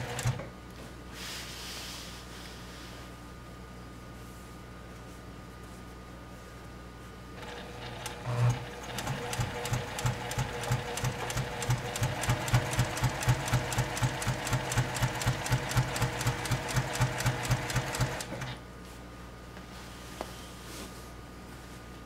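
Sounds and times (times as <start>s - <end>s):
sewing machine stitching: 0.0s - 0.4s, 7.4s - 18.6s.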